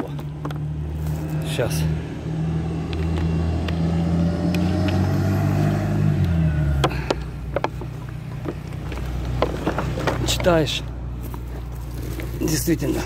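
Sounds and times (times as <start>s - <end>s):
bus engine humming: 0.0s - 13.0s.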